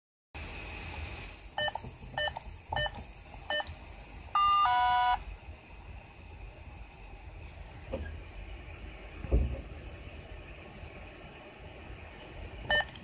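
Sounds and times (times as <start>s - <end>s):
short buzzer beeps: 4.4s - 5.2s
two-tone buzz dropping in pitch: 4.4s - 5.2s.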